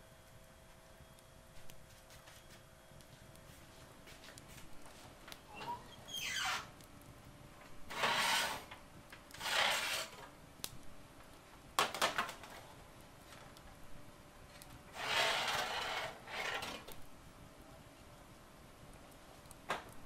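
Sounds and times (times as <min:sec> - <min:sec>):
baking tray scraping on oven rack: 0:05.5 - 0:06.7, 0:07.9 - 0:08.7, 0:09.3 - 0:10.2, 0:14.9 - 0:17.0.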